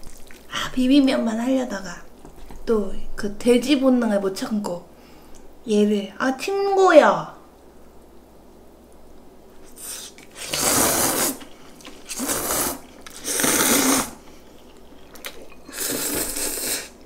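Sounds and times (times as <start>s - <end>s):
noodles being slurped: 0.0s - 0.6s, 9.7s - 17.0s.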